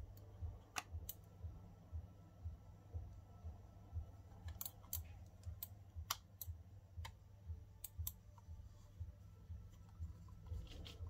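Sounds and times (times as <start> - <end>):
faint low pulse: 0.0 - 4.4.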